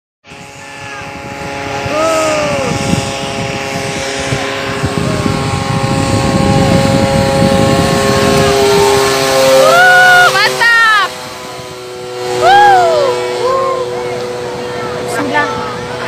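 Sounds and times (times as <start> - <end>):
aircraft engine droning: 0.2 - 16.0
voices calling out: 8.7 - 16.0.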